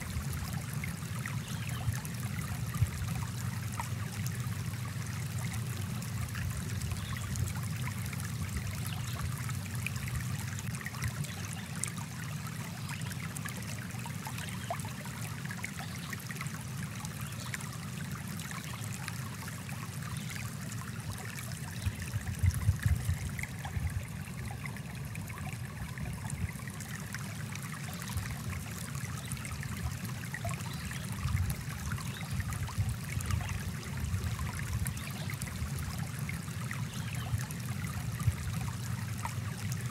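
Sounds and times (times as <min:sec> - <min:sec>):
stream water running over rocks: 0:00.0 - 0:39.9.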